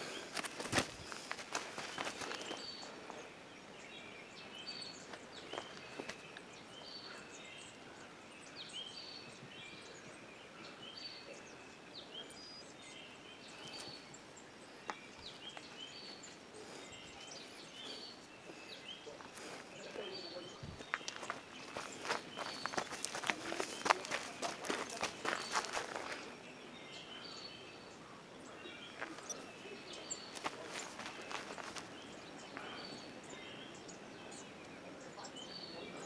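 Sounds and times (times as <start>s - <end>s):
footsteps on a trail: 0.0s - 3.3s, 4.6s - 7.1s, 14.8s - 26.6s, 28.7s - 34.5s
small birds chirping and singing: 0.0s - 36.0s.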